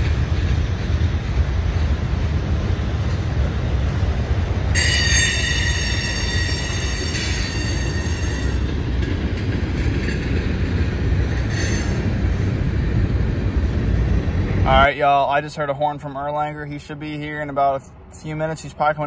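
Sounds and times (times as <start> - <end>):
train wheels rumbling on rail: 0.0 - 19.0
high ringing wheel squeal: 4.7 - 8.8, 11.4 - 12.2.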